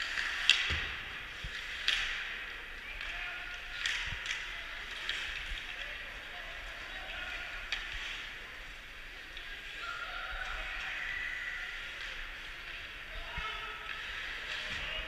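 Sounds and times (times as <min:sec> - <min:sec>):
hockey sticks and puck clacking: 0:00.0 - 0:09.5.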